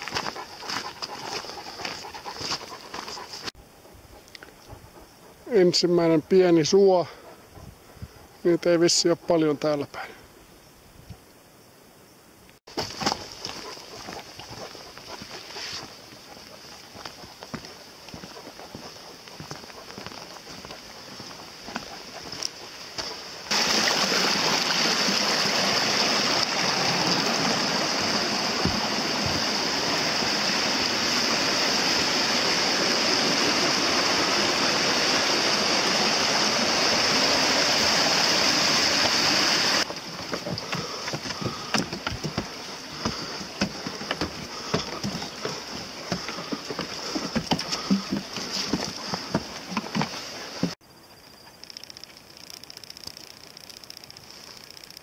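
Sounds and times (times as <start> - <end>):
footsteps on wooden steps: 0.0 - 3.5, 12.7 - 23.7, 26.4 - 30.6, 39.8 - 50.8
running water rushing: 18.1 - 50.8.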